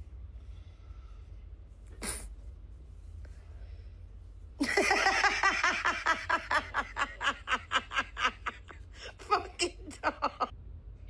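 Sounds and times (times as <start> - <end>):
person laughing hard: 4.6 - 10.5.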